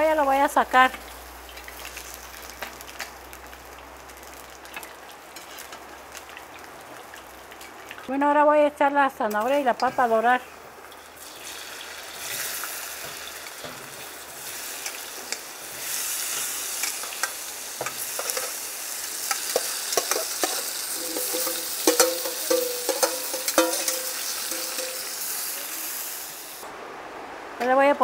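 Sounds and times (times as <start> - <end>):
vegetables sizzling in hot oil: 0.0 - 8.1, 9.2 - 26.6
metal spoon clinking and scraping: 19.5 - 25.1.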